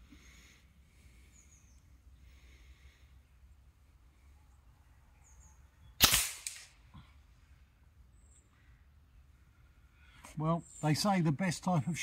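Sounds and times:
air rifle shot crack: 0:06.0 - 0:06.8.

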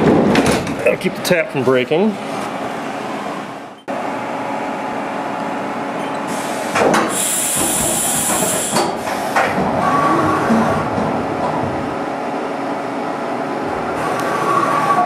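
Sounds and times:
machine whir and hum: 0:00.0 - 0:15.0
high air hiss: 0:06.3 - 0:09.4.

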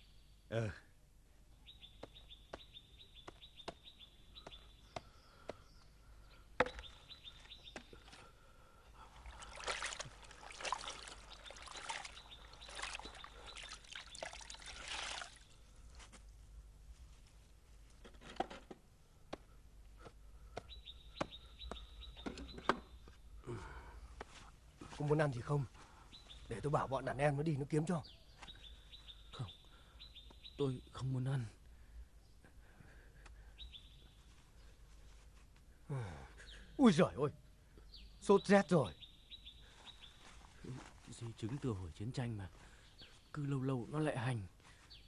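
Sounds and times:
water pouring and trickling: 0:09.1 - 0:15.6.

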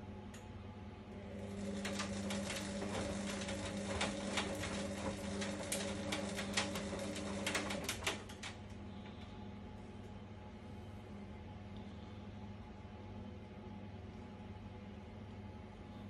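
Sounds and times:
washer dryer humming: 0:00.0 - 0:10.2
washer dryer clicks and rattles: 0:01.6 - 0:08.6.

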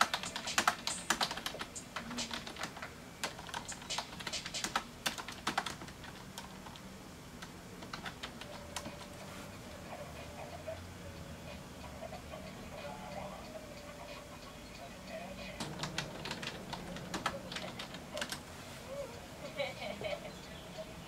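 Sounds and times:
computer keyboard typing: 0:00.0 - 0:06.8, 0:07.4 - 0:09.2, 0:15.6 - 0:18.4.

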